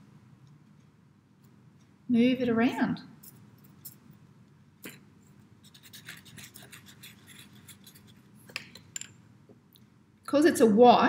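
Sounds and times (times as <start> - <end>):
charcoal scratching on paper: 5.6 - 8.4
fingertips rubbing on paper: 5.6 - 8.4.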